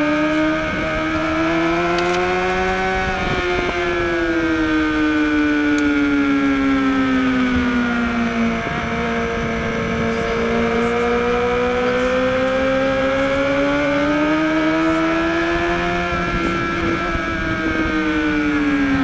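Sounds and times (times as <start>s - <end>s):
motorcycle engine accelerating: 0.0s - 19.0s.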